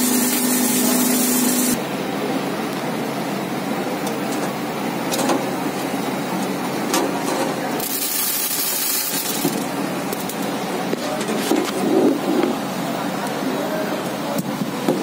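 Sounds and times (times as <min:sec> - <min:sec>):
loud high hiss: 0:00.0 - 0:01.8
processing machinery running: 0:00.0 - 0:15.0.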